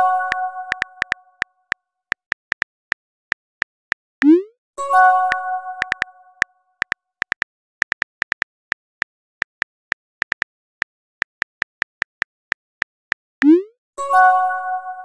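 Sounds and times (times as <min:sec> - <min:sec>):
phone keyboard tap clicks: 0:00.3 - 0:01.2, 0:05.8 - 0:06.1, 0:06.8 - 0:08.5, 0:09.4 - 0:10.5.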